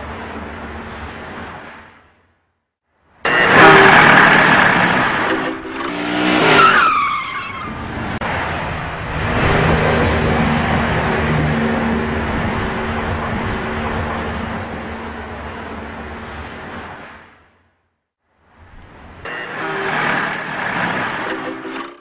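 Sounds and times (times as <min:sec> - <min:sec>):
cars colliding: 0:03.2 - 0:15.0
tyres skidding and screeching: 0:03.2 - 0:17.4, 0:19.1 - 0:22.0
steady rushing noise: 0:07.7 - 0:17.8.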